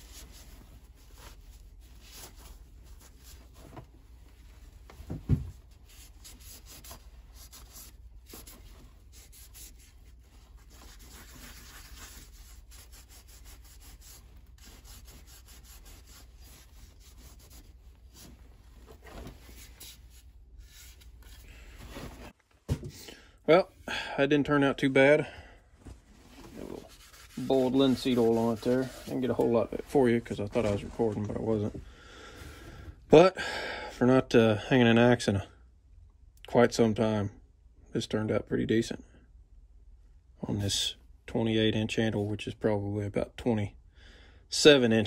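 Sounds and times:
cloth rubbing on axe: 0.0s - 22.4s, 25.8s - 31.7s.

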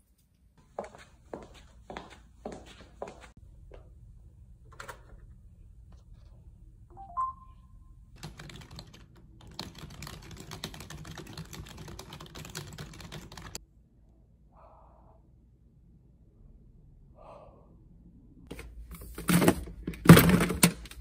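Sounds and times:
short electronic beep: 6.9s - 7.7s
fast typing on keyboard: 8.2s - 13.6s.

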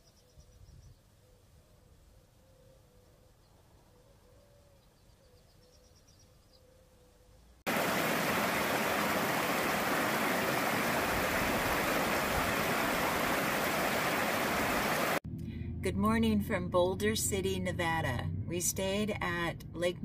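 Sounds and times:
brook rushing over stones: 7.7s - 15.2s.

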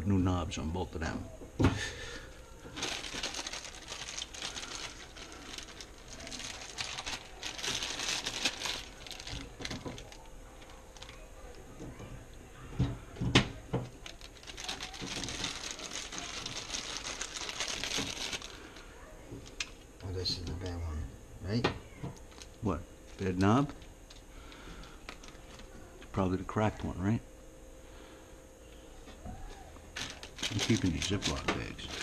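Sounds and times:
plastic bags crinkling: 1.8s - 11.7s, 13.6s - 19.8s, 22.2s - 25.8s, 29.9s - 32.0s.

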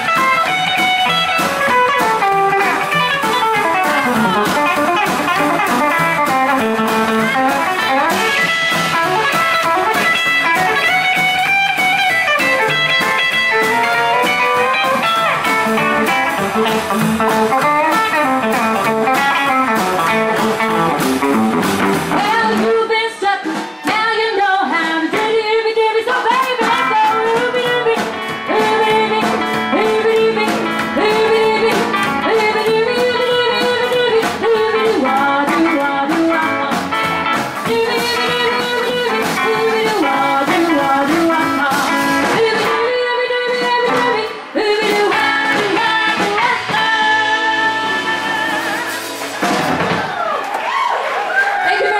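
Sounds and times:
rockabilly band playing: 0.0s - 51.9s
woman singing: 22.0s - 49.0s, 51.6s - 51.9s.

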